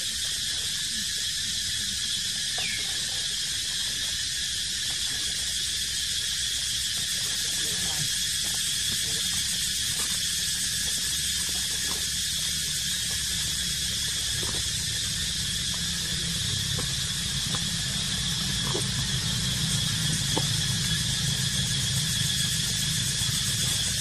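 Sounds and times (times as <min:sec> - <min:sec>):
insects buzzing: 0:00.0 - 0:24.0
low steady rumble: 0:07.4 - 0:24.0.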